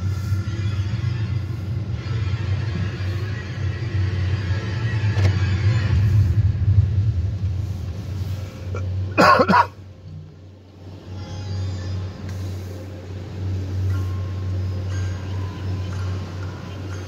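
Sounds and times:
cough-like vocal sound: 0:08.7 - 0:09.8.

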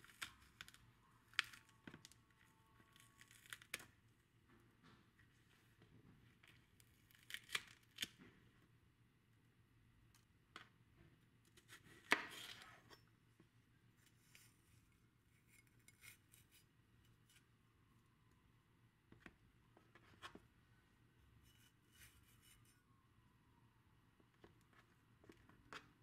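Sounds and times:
utensil scrape: 0:21.4 - 0:22.8.

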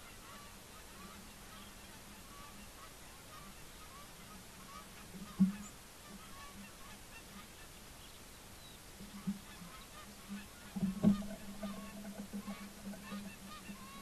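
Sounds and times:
geese honking in flight: 0:00.0 - 0:07.8, 0:09.0 - 0:14.0.

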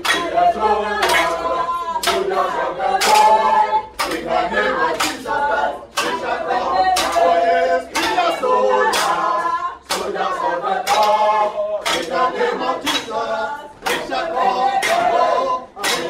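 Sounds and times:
sharp rhythmic strike: 0:00.0 - 0:05.3
group of voices singing: 0:00.0 - 0:16.0.

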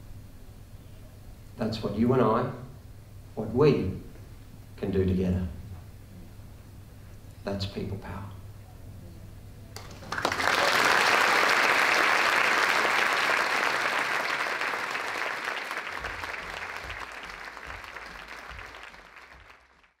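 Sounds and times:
audience applauding: 0:09.8 - 0:20.0.

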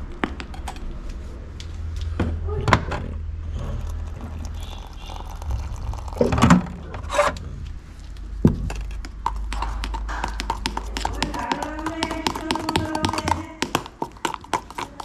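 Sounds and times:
objects knocking and thudding: 0:08.4 - 0:15.0.

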